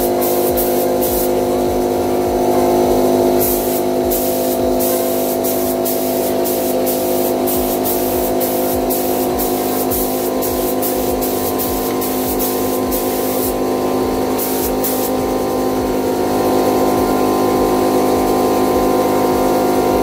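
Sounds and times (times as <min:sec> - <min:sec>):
paint spray gun hissing: 0:00.0 - 0:02.5, 0:03.2 - 0:19.9
background music with steady beat: 0:00.0 - 0:20.0.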